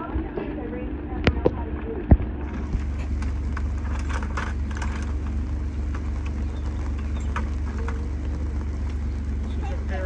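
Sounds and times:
utility vehicle engine idling: 2.4s - 10.0s.

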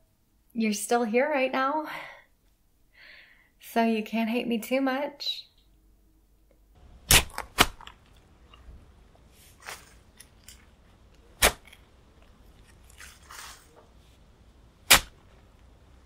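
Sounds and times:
shovel digging into earth: 7.1s - 7.9s, 11.4s - 11.8s, 14.8s - 15.2s.

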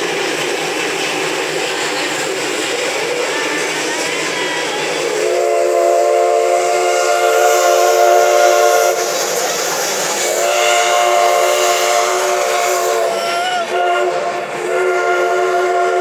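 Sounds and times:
steam locomotive chime whistle: 3.0s - 9.2s, 10.2s - 16.0s.

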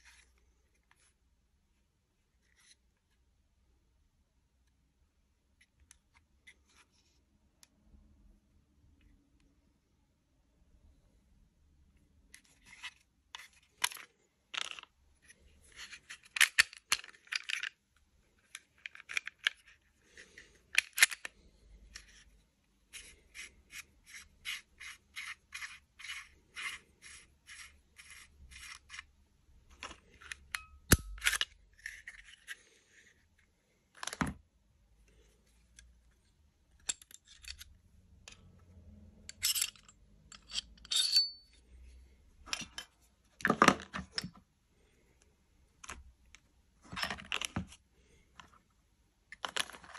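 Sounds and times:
pistol parts clicking and scraping: 12.3s - 22.3s, 22.9s - 33.2s, 35.6s - 38.5s, 39.2s - 41.6s.

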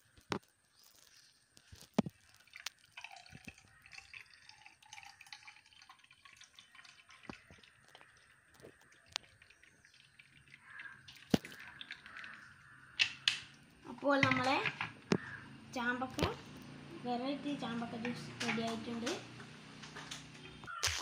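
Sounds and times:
juice pouring into glass: 1.8s - 12.8s.

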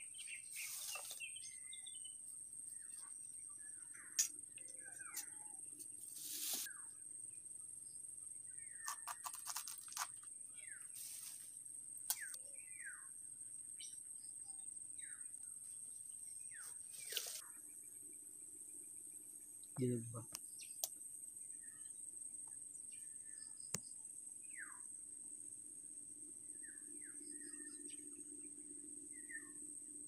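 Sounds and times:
leaves rustling: 0.5s - 1.3s, 6.1s - 6.7s, 10.9s - 11.5s, 16.9s - 17.4s.

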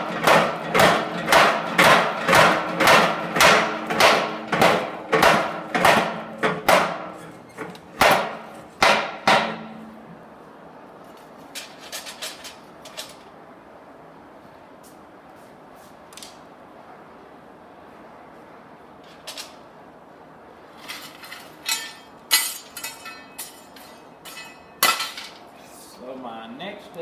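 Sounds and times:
power hammer striking hot steel: 0.0s - 7.2s, 8.0s - 10.0s.

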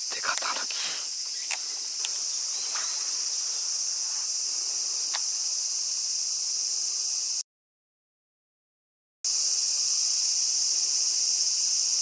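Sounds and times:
insects droning: 0.0s - 7.4s, 9.3s - 12.0s
faint clicks: 5.1s - 5.3s.

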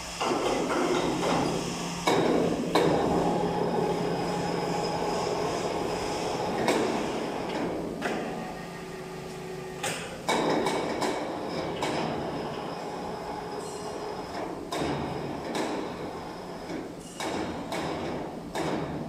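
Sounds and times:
factory rushing din with hum: 0.0s - 19.0s.

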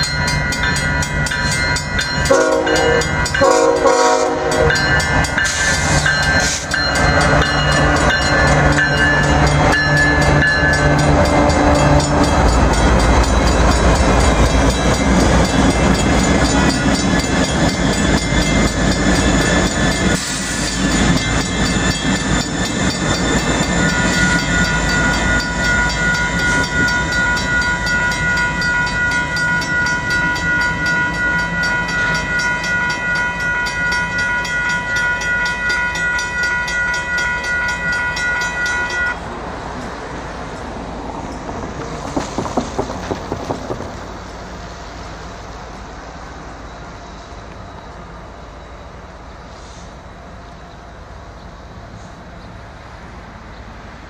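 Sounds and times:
crossing bell ringing: 0.0s - 39.4s
steel wheels on rails: 0.0s - 52.6s
diesel locomotive engine rumble: 0.0s - 54.0s
train air horn: 2.3s - 4.9s.

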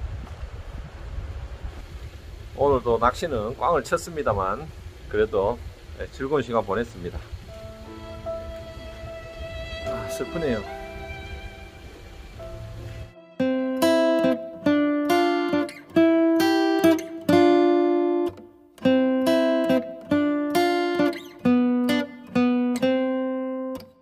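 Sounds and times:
acoustic guitar strumming chords: 7.5s - 24.0s.

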